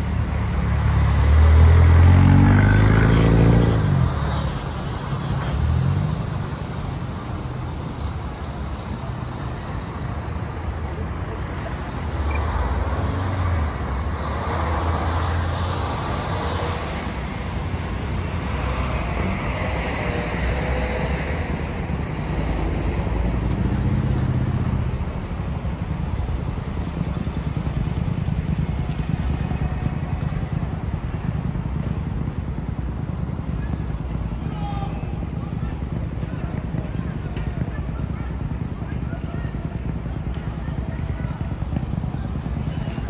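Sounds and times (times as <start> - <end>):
city street traffic: 0.0 - 43.0
vehicle engine rumble passing: 0.0 - 43.0.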